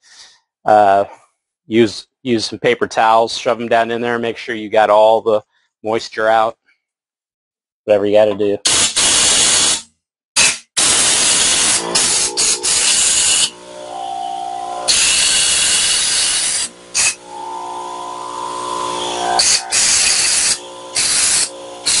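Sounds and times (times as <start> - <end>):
compressed air blow gun hissing: 10.4 - 14.2, 14.8 - 22.0
steady humming tone: 11.7 - 22.0.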